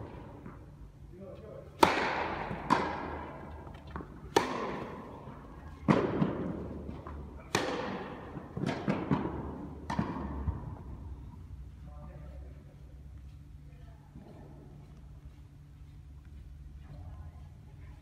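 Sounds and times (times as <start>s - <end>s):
tennis ball hit by rackets: 1.8s - 5.1s, 5.8s - 10.8s.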